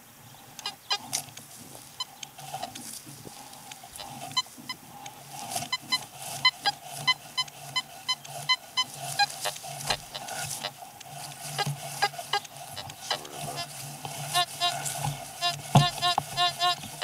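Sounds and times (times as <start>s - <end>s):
steady low hum: 0.0s - 17.0s
metal detector high beeps: 14.3s - 17.0s.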